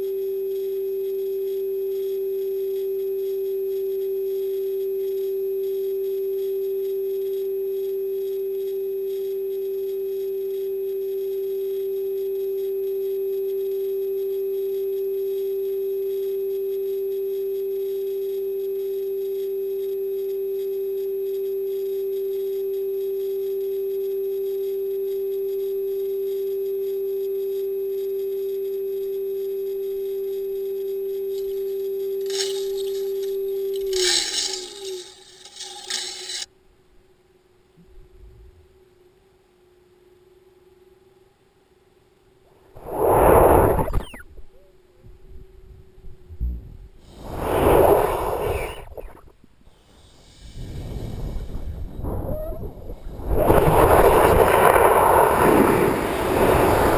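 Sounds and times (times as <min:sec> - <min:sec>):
steady humming tone: 0:00.0 - 0:56.9
rattling and scraping: 0:32.2 - 0:36.5.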